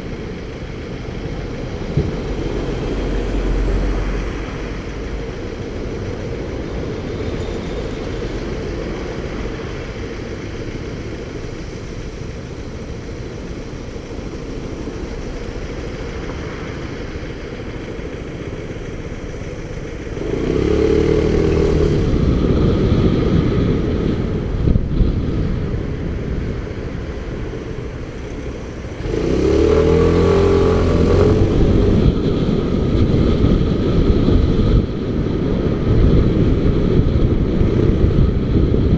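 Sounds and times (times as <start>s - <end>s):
motorcycle engine idling and accelerating: 0.0s - 38.9s.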